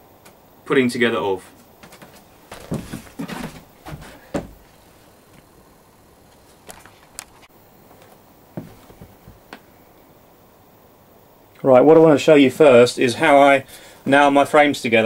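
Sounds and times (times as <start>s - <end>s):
light knocks and clatter: 1.8s - 4.6s
soft thump: 2.5s - 4.6s.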